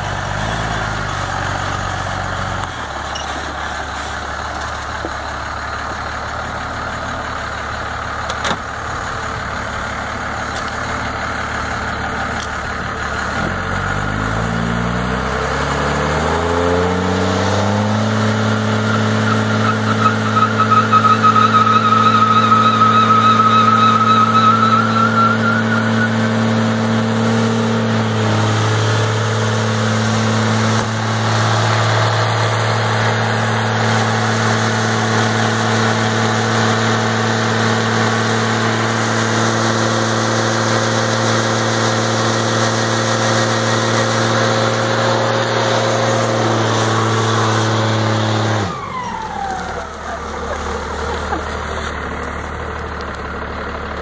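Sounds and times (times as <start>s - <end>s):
truck engine revving: 0.0s - 54.0s
tyres spinning on pavement: 18.2s - 27.4s.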